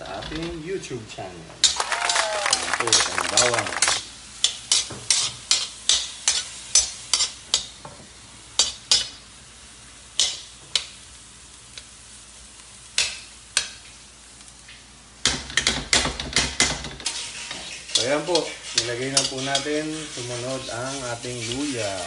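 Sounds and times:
garlic sizzling: 1.6 - 22.0
spatula scraping a steel wok: 4.4 - 7.7, 8.6 - 9.2, 16.4 - 22.0.

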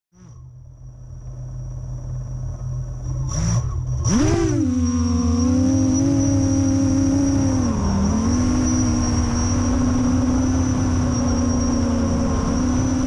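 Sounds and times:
quadcopter motors buzzing: 3.3 - 13.0
thin high whine: 4.4 - 13.0.

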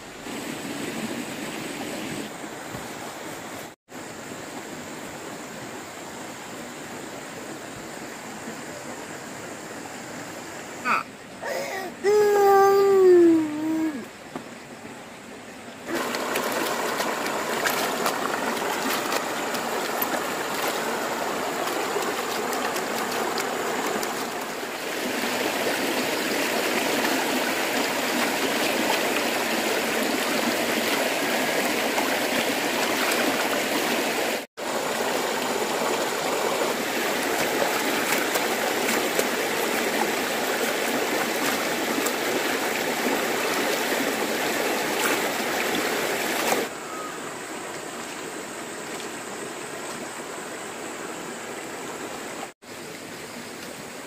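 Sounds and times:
rocky stream running: 0.0 - 54.0
clothes splashing in water: 15.8 - 24.6, 37.0 - 44.0.

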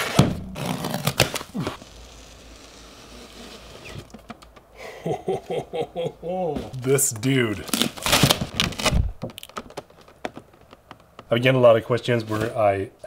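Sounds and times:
cardboard scraping: 0.0 - 4.5, 7.6 - 11.4
cardboard knocks and rustles: 8.3 - 11.3.

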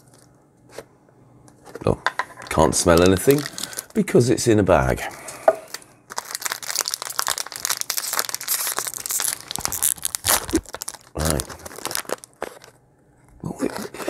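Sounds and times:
plastic bag crinkling: 2.4 - 4.2, 5.7 - 12.8.

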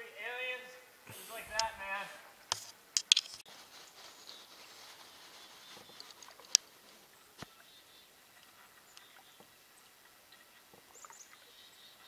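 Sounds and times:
faint ticks: 5.7 - 6.7, 8.4 - 9.5.

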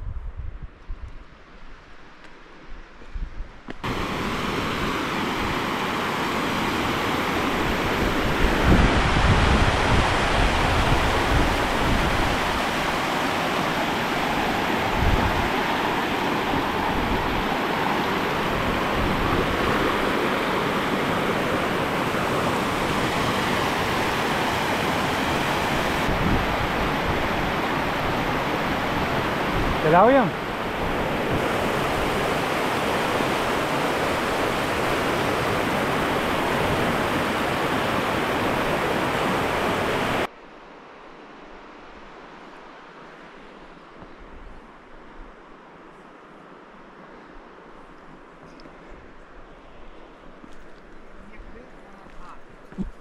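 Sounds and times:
stream rushing over rocks: 3.8 - 40.3.

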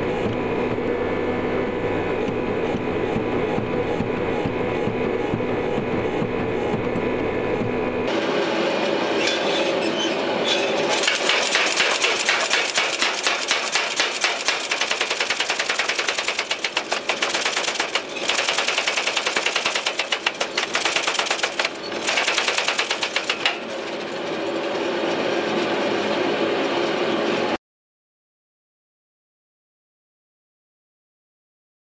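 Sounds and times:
power hammer striking hot steel: 10.5 - 23.7.

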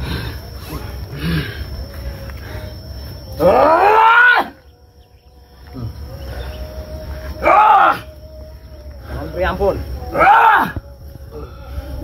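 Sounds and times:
thin steady high tone: 0.0 - 12.0.

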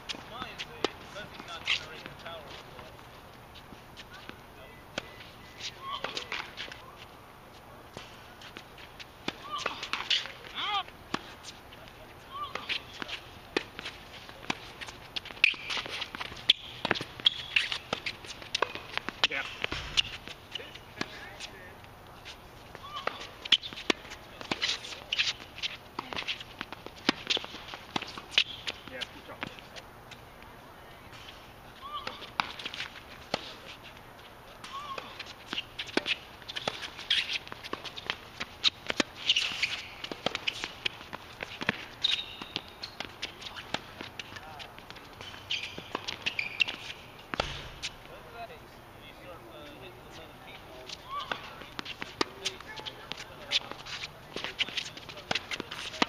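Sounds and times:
sneaker squeak: 14.6 - 20.8, 22.8 - 29.0, 34.6 - 40.8, 41.4 - 44.3, 45.2 - 48.0, 50.8 - 56.0
tennis ball bounces: 15.2 - 21.5, 22.7 - 25.4, 34.6 - 47.9
tennis ball pops off racket: 45.8 - 47.8
sneakers scuffing on court: 49.6 - 56.0.

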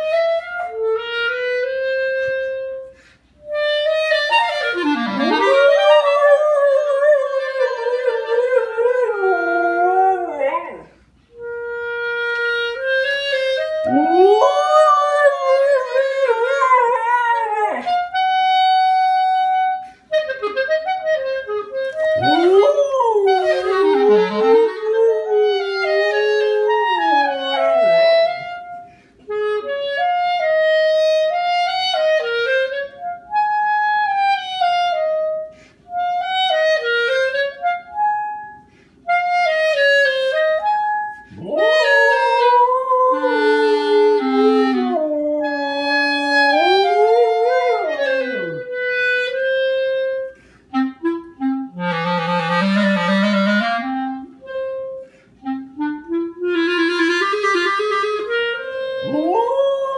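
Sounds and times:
clarinet slow melody: 0.0 - 59.9
husky howling: 22.2 - 27.9, 41.4 - 48.6.

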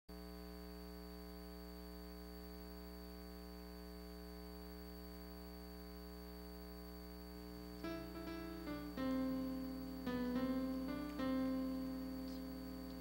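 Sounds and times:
faint electrical hum: 0.1 - 13.0
thin high whine: 4.5 - 13.0
light hiss: 7.3 - 13.0.

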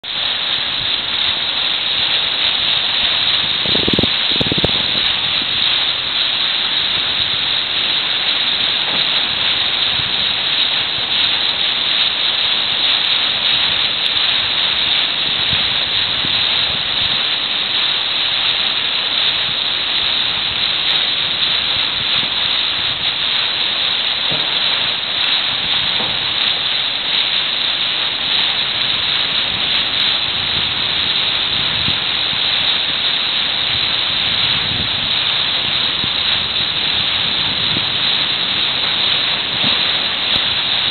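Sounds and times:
sea water streaming past bow: 0.0 - 40.9
wind rushing: 2.2 - 11.6, 13.6 - 17.4, 33.6 - 40.9.

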